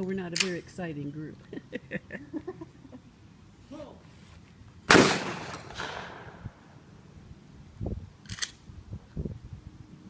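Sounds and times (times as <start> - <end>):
shotgun shot echoing: 4.9 - 6.5.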